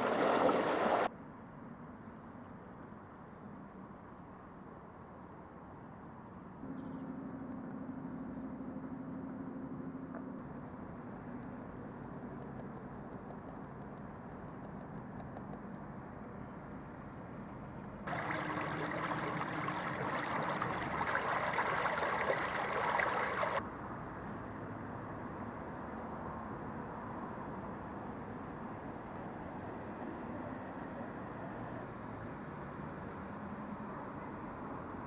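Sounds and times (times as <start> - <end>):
outdoor background rumble: 6.4 - 27.0
faint hum: 18.1 - 23.6.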